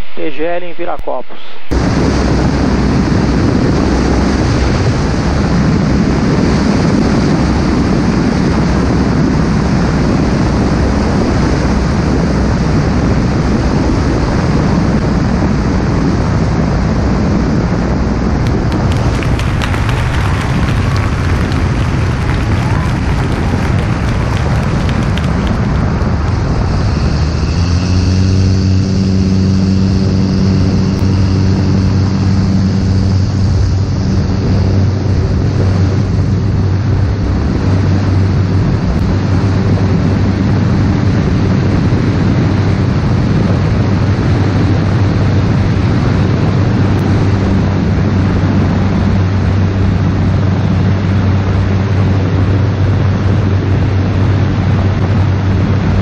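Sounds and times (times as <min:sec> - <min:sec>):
rush of air: 0:00.0 - 0:03.4, 0:18.5 - 0:28.3
light aircraft engine and propeller: 0:01.8 - 0:56.0.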